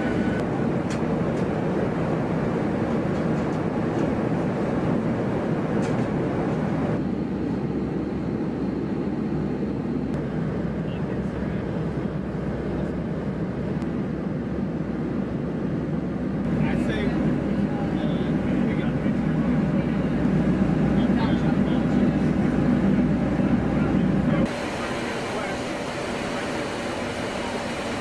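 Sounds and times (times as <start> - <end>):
aircraft cabin engine roar: 0.0 - 28.0.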